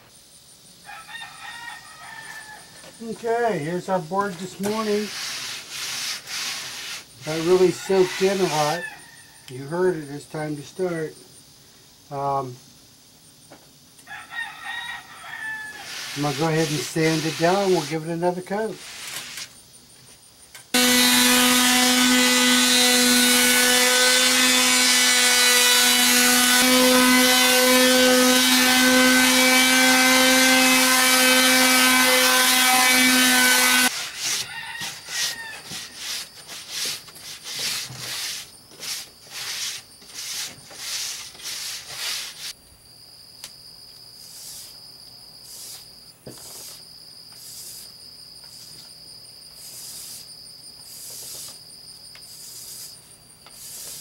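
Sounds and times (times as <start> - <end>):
crickets trilling: 0.0 - 20.8, 33.9 - 54.0
electric sander on wood: 3.0 - 8.8, 15.9 - 18.4, 20.8 - 42.5
cloth rubbing a board: 4.3 - 8.6, 15.8 - 18.1, 33.9 - 42.5.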